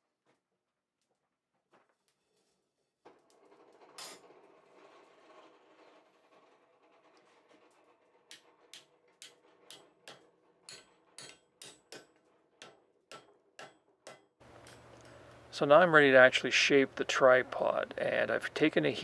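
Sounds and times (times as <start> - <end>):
hammer striking iron on anvil: 8.7 - 14.8.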